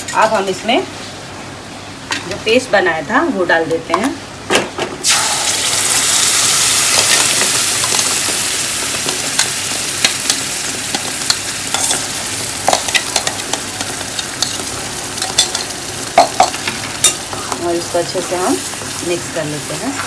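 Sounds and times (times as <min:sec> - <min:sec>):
paste sizzling in hot oil: 0:05.0 - 0:20.0.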